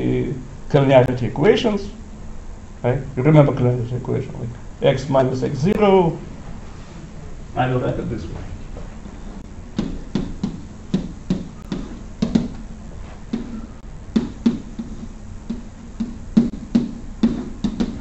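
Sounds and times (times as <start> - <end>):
chalk tapping on blackboard: 9.8 - 18.0.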